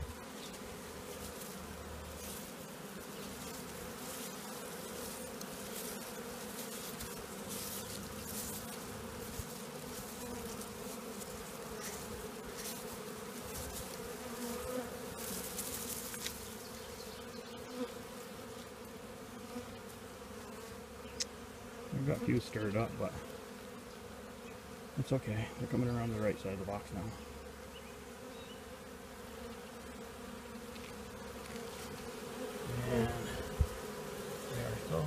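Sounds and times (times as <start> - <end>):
grass rustling: 0.0 - 17.2, 30.6 - 35.0
honeybees buzzing: 0.0 - 35.0.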